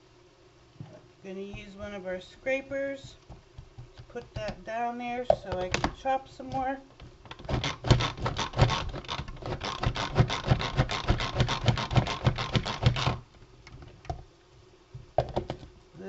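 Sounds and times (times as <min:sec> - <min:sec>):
manual food processor chopping: 0:01.5 - 0:04.7, 0:05.3 - 0:13.9.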